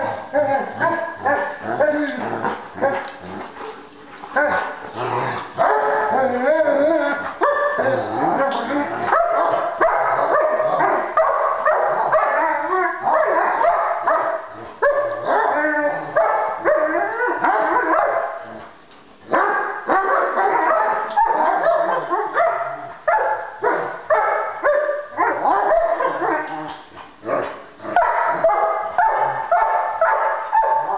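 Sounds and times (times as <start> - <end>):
dogs barking and yipping: 0.0 - 30.9.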